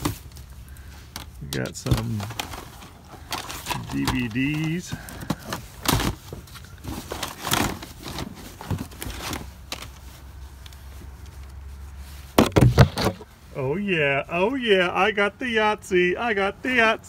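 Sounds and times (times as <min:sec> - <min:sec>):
plastic cases clacking and rustling: 0:00.0 - 0:11.5, 0:12.3 - 0:13.3.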